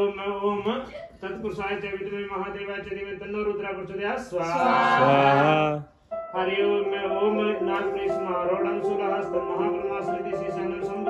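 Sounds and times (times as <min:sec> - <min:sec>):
devotional music: 0:04.9 - 0:11.0
man singing: 0:06.4 - 0:11.0.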